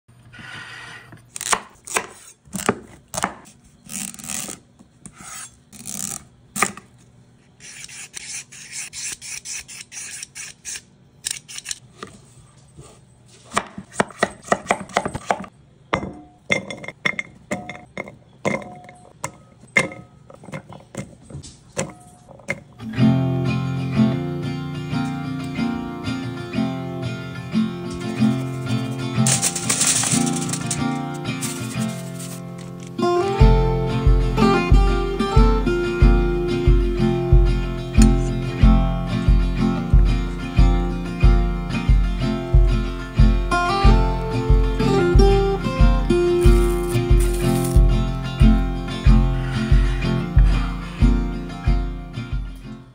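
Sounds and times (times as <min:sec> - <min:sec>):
knife scraping board: 0:00.2 - 0:06.8, 0:07.4 - 0:15.5, 0:30.1 - 0:32.9, 0:46.4 - 0:47.9
knife chopping on wooden board: 0:01.4 - 0:03.5, 0:13.5 - 0:15.5
music with sustained tones: 0:22.8 - 0:52.9.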